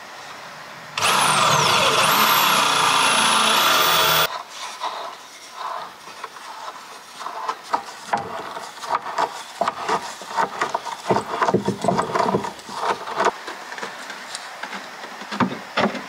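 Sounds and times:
irregular knocking and clattering: 7.3 - 16.0.

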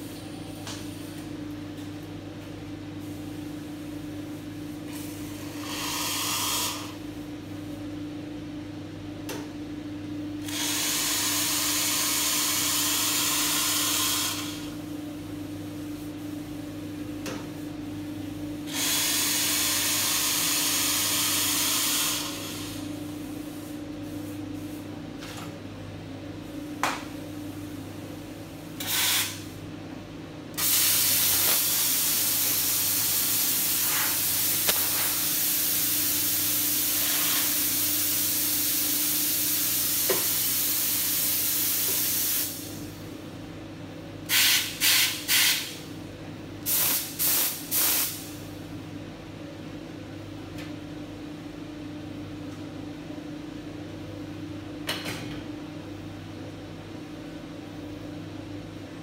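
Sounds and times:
espresso steam wand hissing: 5.2 - 7.0, 10.5 - 14.8, 18.7 - 22.9.

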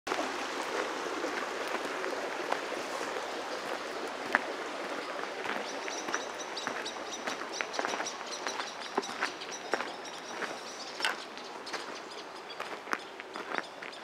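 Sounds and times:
bird chirping: 5.0 - 14.0.

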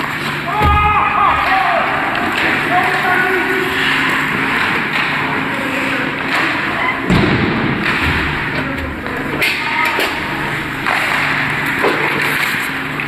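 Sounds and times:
skates scraping ice: 0.0 - 7.1, 7.8 - 13.0
hockey sticks and puck knocking: 0.0 - 13.0
heavy thud: 0.6 - 1.5, 7.1 - 9.2.

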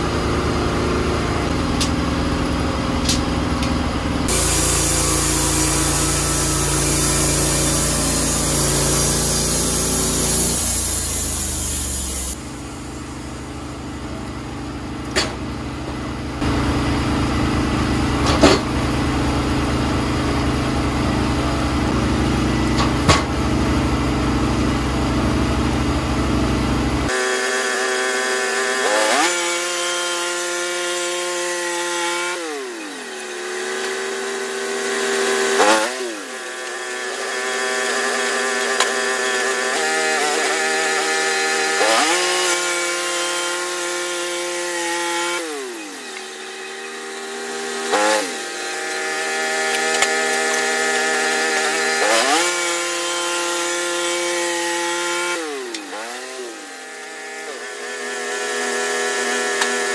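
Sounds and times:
sawmill gas engine sawing log: 0.0 - 59.9.

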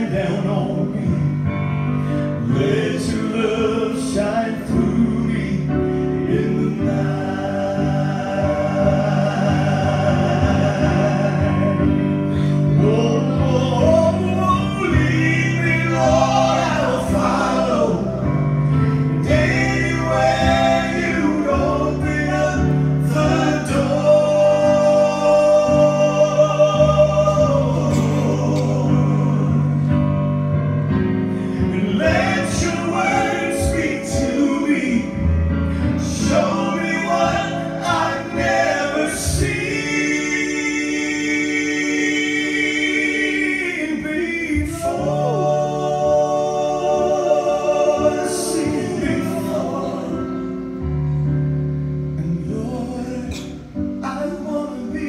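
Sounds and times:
accompaniment holding low notes: 0.0 - 55.0
male vocal trio singing in harmony: 0.0 - 55.0.

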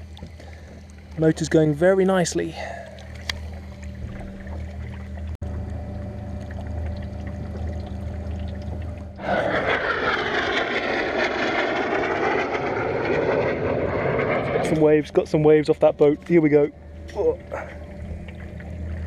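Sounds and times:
passing boat engine rushing: 0.8 - 19.0.

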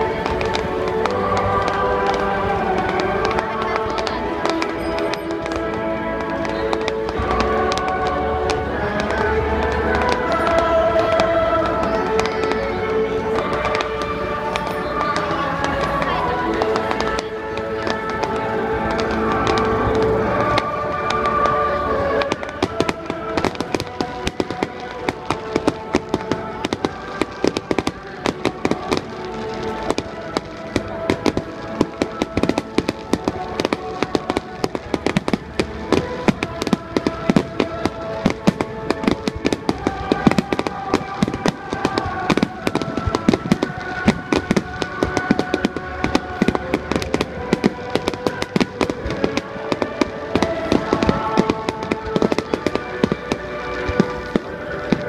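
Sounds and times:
fireworks crackling: 0.0 - 55.0
music over outdoor loudspeakers: 0.0 - 55.0
loud firework bangs: 13.4 - 55.0.

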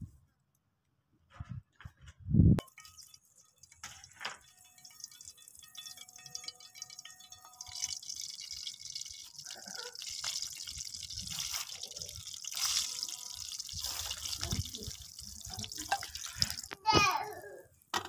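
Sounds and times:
hot oil sizzling in a frying pan: 2.6 - 16.8.

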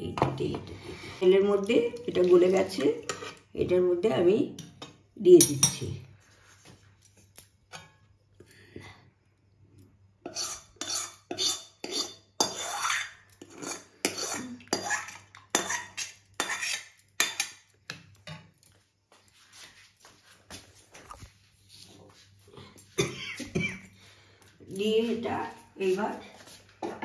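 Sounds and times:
metal spoon scraping a pan: 2.4 - 3.6, 10.2 - 18.6.

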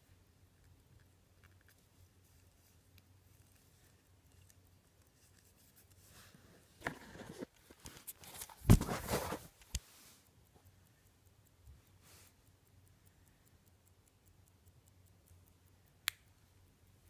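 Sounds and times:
phone handling rustling: 6.8 - 9.6.

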